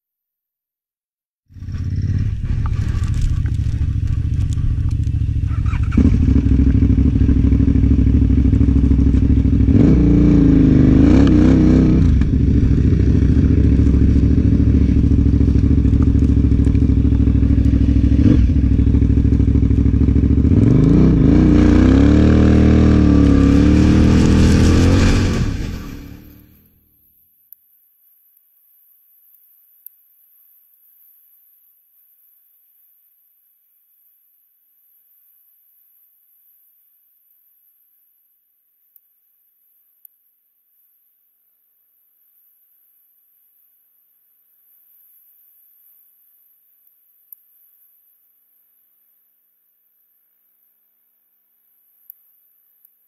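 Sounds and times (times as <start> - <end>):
motorcycle engine revving: 1.5 - 26.8.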